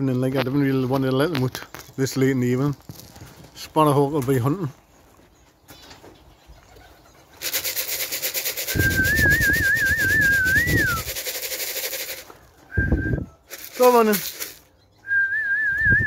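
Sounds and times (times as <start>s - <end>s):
feed rattling in a tin: 7.4s - 12.4s, 13.5s - 14.7s
man's warbling whistle: 8.7s - 11.1s, 12.7s - 13.3s.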